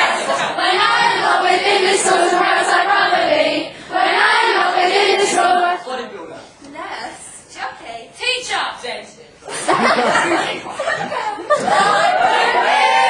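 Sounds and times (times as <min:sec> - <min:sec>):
group singing long held notes: 0:00.0 - 0:06.0, 0:11.5 - 0:13.0.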